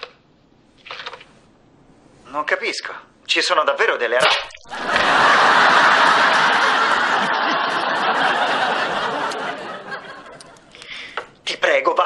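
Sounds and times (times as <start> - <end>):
studio audience laughing: 4.6 - 10.8.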